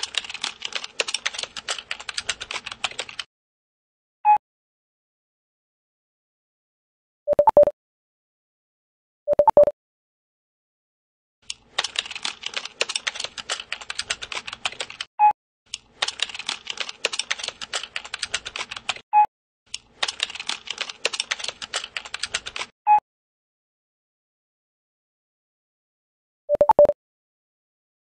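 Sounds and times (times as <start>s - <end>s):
rapid typing on laptop keyboard: 0.0s - 3.3s, 11.4s - 15.1s, 15.7s - 19.1s, 19.7s - 22.8s.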